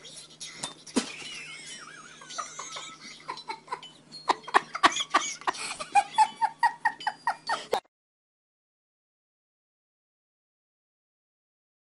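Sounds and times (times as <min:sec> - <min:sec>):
high-pitched laughter: 0:00.9 - 0:07.8.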